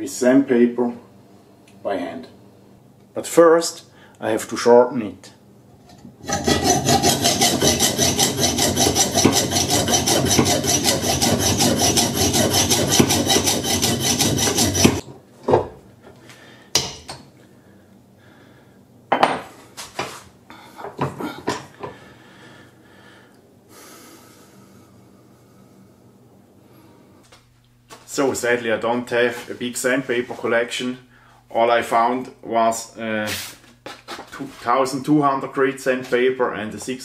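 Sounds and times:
hand saw cutting metal: 6.2 - 15.0.

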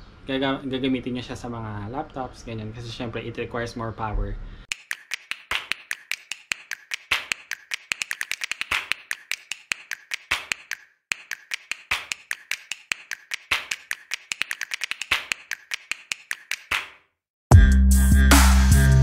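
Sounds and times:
rapid sharp taps: 4.7 - 17.0.

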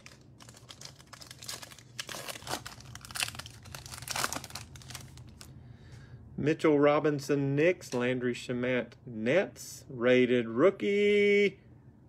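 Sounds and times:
foil wrapper tearing and crinkling: 0.0 - 5.5.

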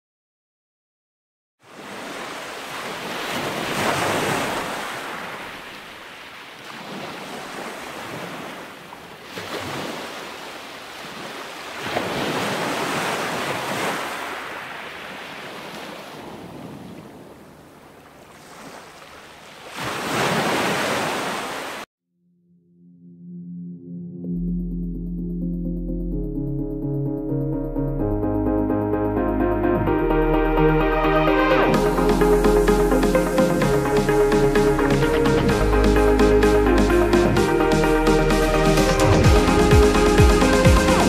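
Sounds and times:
sea waves breaking on rocks: 1.7 - 21.9.

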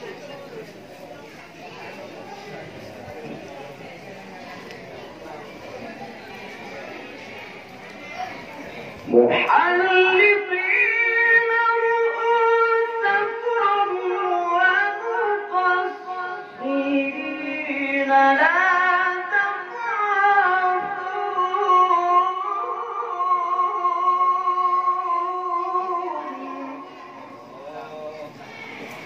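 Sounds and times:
man reciting melodically: 9.1 - 27.2.

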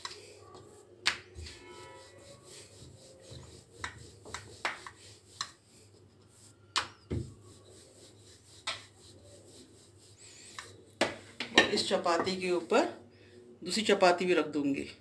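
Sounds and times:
rolling pin rolling dough: 0.0 - 13.0
rolling pin knocking on marble: 3.8 - 5.0.

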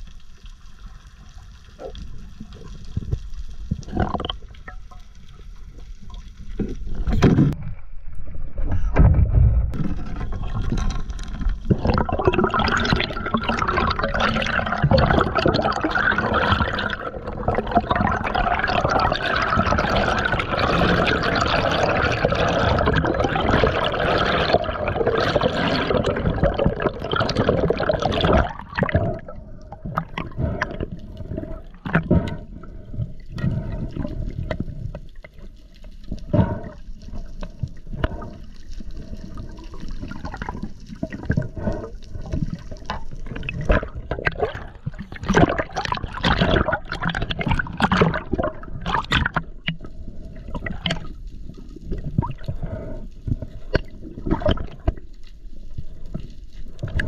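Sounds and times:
water splashes and knocks: 6.5 - 7.9, 8.5 - 13.5, 42.3 - 49.8.

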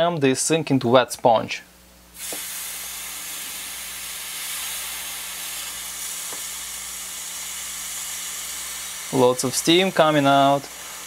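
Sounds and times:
water sizzling into steam: 2.2 - 11.0.

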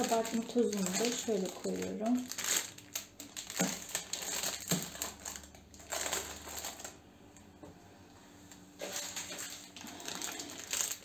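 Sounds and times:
food packets crinkling and rustling: 0.0 - 7.1, 8.6 - 11.0.

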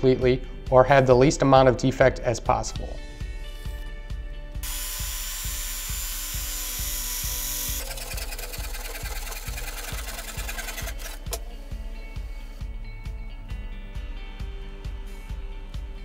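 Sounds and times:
background music with steady beat: 0.0 - 16.0
circular saw cutting wood: 4.6 - 11.4
handsaw sawing: 7.7 - 11.2.

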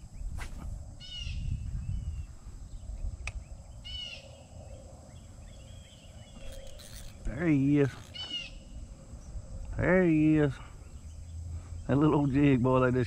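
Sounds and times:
bird calls: 1.0 - 12.5.

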